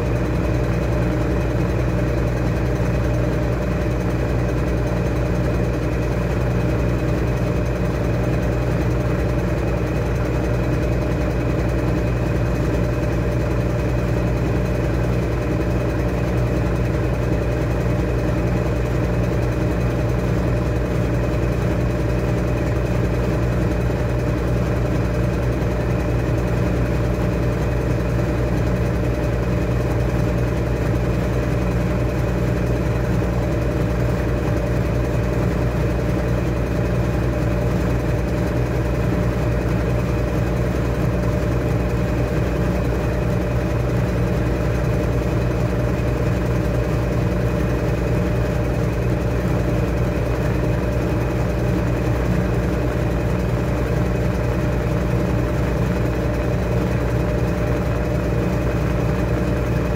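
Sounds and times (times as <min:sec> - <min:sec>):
washing machine humming: 0:00.0 - 0:59.9.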